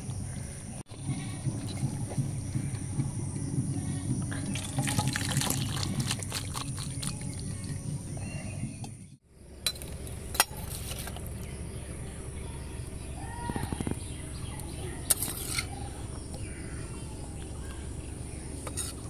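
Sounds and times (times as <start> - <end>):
thick curry pouring into bowl: 4.6 - 7.3.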